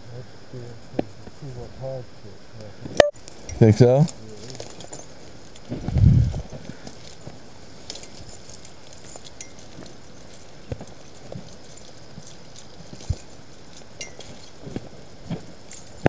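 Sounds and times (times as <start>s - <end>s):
footsteps: 3.1s - 16.0s
bicycle rattling and jingling: 3.2s - 16.0s.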